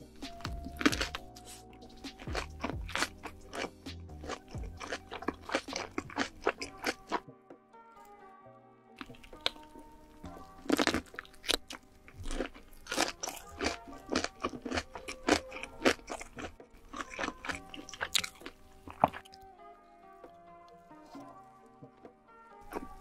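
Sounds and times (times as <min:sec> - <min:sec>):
crunching fried chicken: 0:00.0 - 0:07.2, 0:09.0 - 0:19.4, 0:22.6 - 0:23.0
soft background music: 0:00.0 - 0:23.0.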